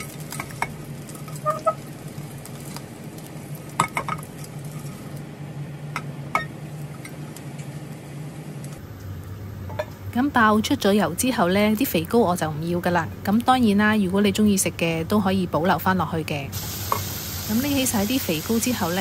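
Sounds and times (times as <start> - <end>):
pork fat sizzling in a saucepan: 0.0 - 5.3, 16.5 - 19.0.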